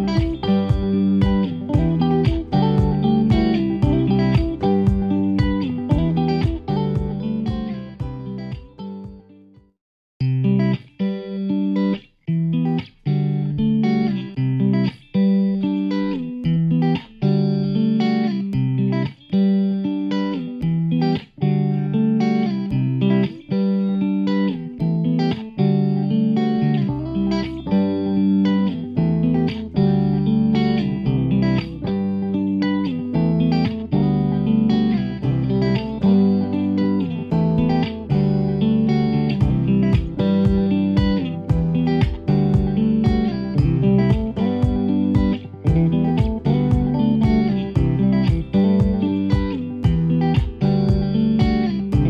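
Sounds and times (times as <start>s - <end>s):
low bass part: 0.0s - 9.2s, 33.2s - 52.0s
plucked string melody: 0.0s - 9.4s, 20.4s - 52.0s.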